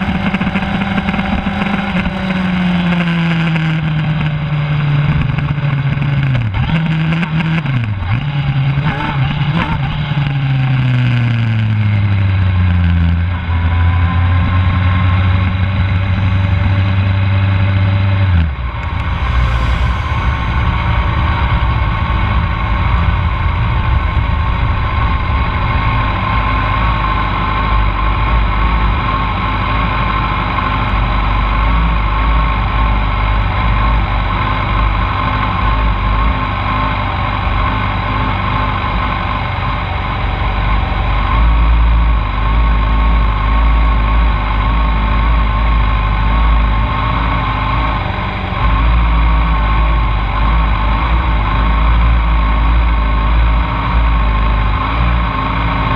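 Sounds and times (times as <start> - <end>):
low rumble: 9.9 - 55.9
motorcycle engines idling: 13.3 - 55.9.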